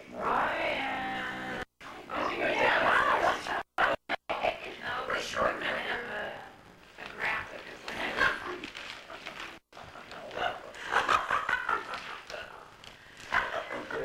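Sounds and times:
women laughing: 8.1 - 14.0.

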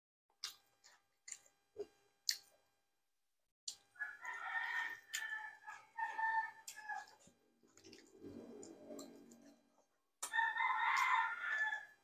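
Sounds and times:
smacking clicks of chewing: 0.4 - 2.6, 3.7 - 11.8
rooster crowing: 4.0 - 7.2, 10.3 - 12.0.

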